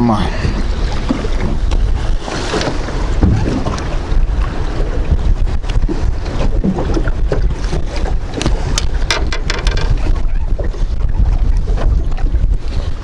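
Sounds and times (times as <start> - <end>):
wind buffeting microphone: 0.0 - 13.0
sharp clicks and knocks: 8.4 - 10.1.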